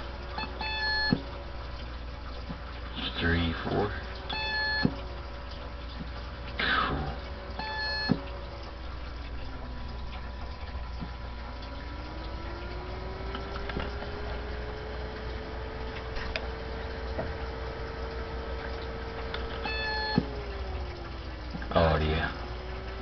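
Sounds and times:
short electronic beep: 7.6s - 8.2s, 19.6s - 20.2s.

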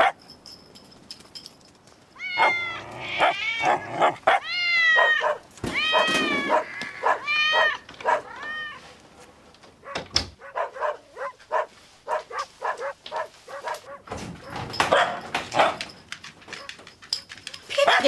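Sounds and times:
animal whining: 2.2s - 8.9s
pet animal crying: 2.2s - 8.9s.

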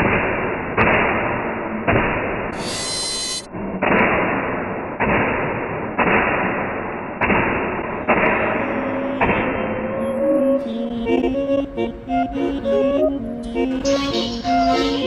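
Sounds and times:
music with steady notes: 10.3s - 15.0s.

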